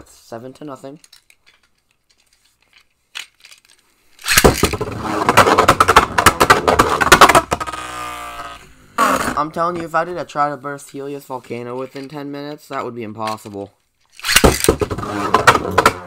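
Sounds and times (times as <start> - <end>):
spinning tops clashing and rattling: 3.2 - 4.9, 14.1 - 15.0
spinning top whirring: 4.2 - 8.6, 14.2 - 15.7.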